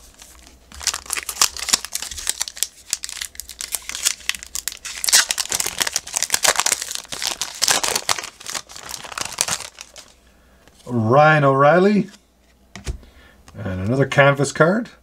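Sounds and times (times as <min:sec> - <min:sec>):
foil wrapper crinkling and tearing: 0:00.1 - 0:10.2.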